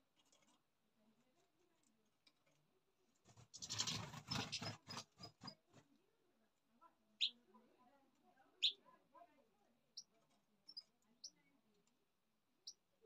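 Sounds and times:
bird chirp: 3.5s - 5.6s, 7.2s - 7.4s, 8.6s - 8.8s, 9.9s - 11.5s, 12.6s - 12.9s.

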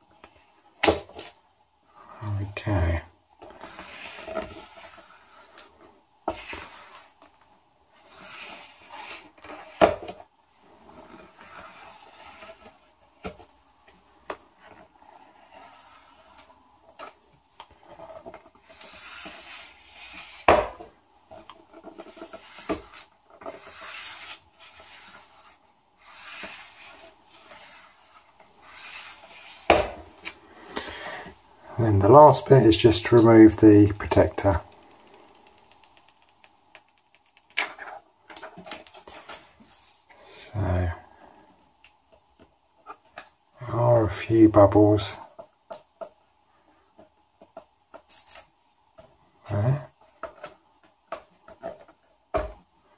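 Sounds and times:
sharp clicks and taps: 34.7s - 37.6s.

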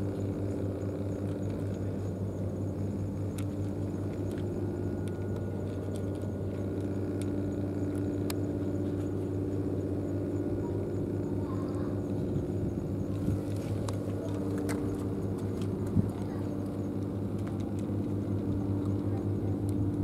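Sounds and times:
low mechanical hum: 0.0s - 20.0s
cat chewing food: 2.8s - 9.8s, 13.1s - 20.0s.

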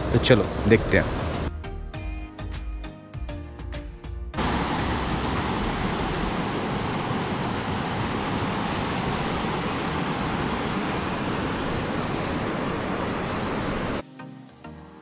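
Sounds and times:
river water over rapids: 0.0s - 1.5s, 4.4s - 14.0s.

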